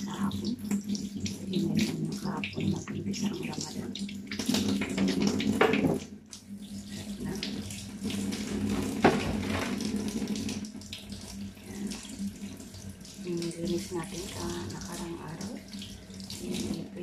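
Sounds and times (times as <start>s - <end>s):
tap water splashing in sink: 0.0s - 17.0s.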